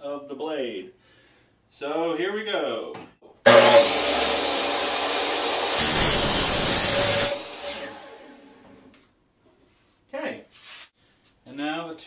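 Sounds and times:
saw cutting through aluminium: 3.5 - 8.6
miter saw whining: 3.5 - 8.8.

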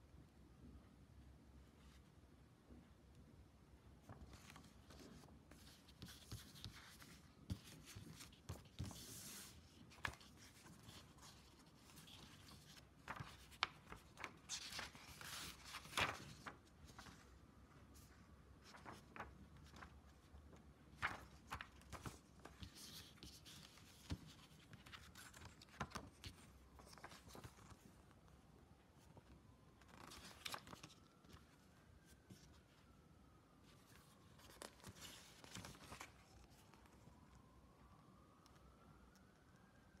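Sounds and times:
packaging being handled and opened: 4.1 - 17.2, 18.6 - 20.0
faint siren rising and falling: 35.1 - 40.0.

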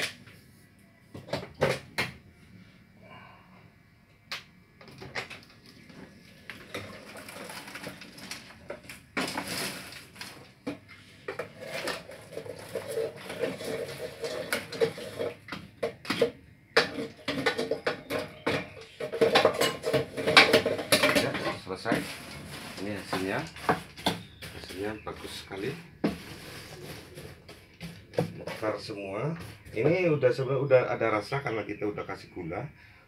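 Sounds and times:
steady hum: 0.0 - 30.4
popcorn popping: 4.3 - 29.9
metal kettle clatter: 11.3 - 15.4.

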